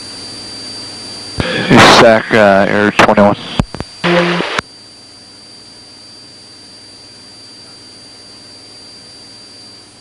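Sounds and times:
radio hiss: 1.4 - 4.7.

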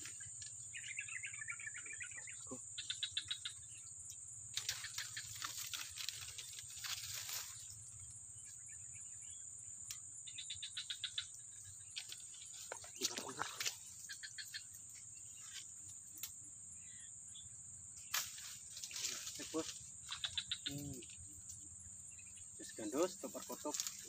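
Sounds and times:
high-pitched insect drone: 0.0 - 24.0
rapid chirping trills: 0.0 - 24.0
rustling: 4.5 - 8.0.

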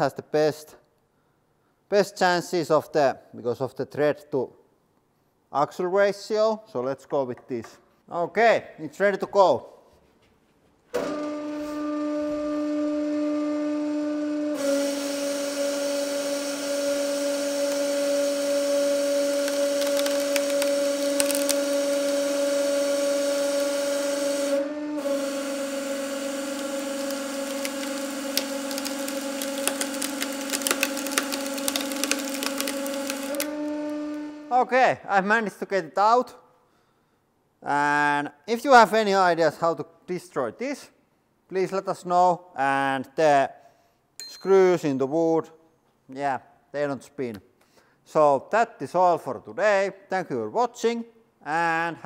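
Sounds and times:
hydraulic press humming: 11.0 - 34.5
wood cracking and splitting: 15.9 - 24.2, 25.2 - 34.0.

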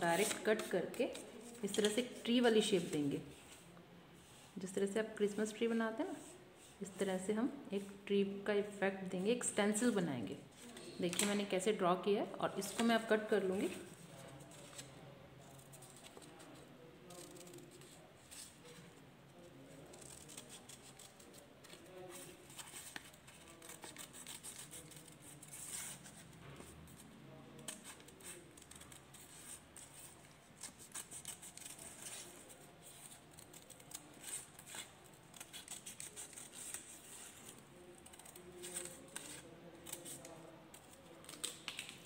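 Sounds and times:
scissors snipping paper: 15.5 - 18.8, 19.7 - 42.0.

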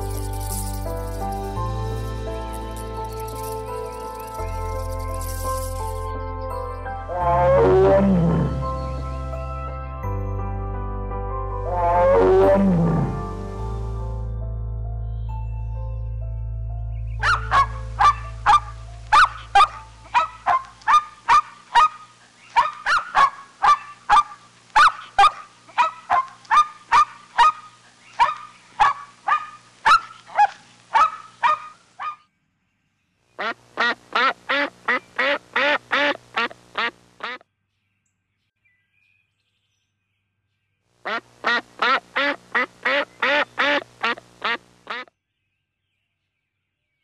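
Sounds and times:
waterfowl honking: 17.2 - 32.2, 33.4 - 37.4, 41.1 - 45.1.

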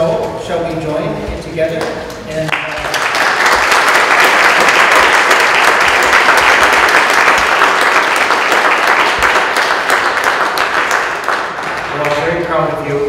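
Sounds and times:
congregation applauding: 2.5 - 12.7.

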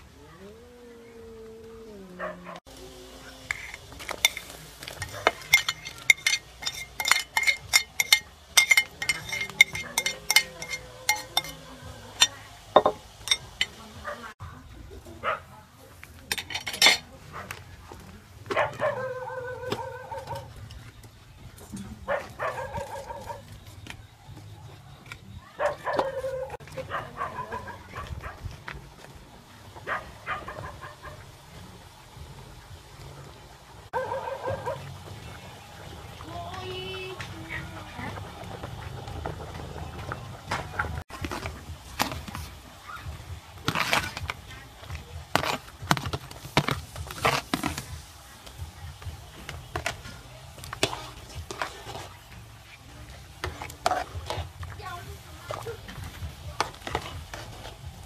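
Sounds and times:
metal ladle clacking on colander: 5.2 - 11.6.

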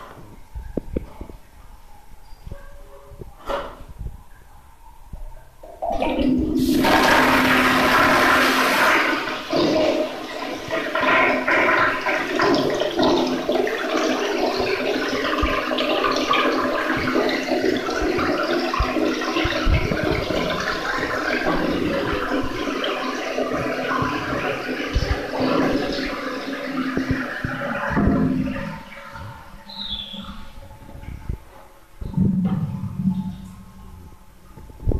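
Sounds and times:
toilet flushing water rush: 5.8 - 30.6.

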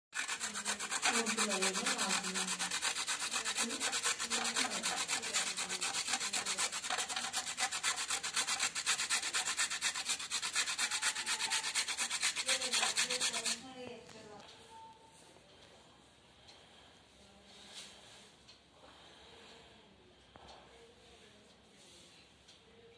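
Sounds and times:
carrot grating on metal grater: 0.2 - 13.6.

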